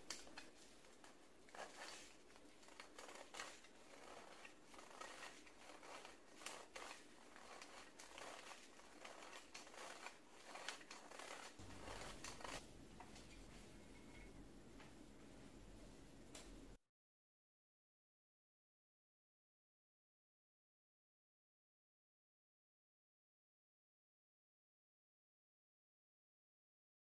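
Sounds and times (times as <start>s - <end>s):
flour sifter scratchy rasps: 0.0s - 12.6s.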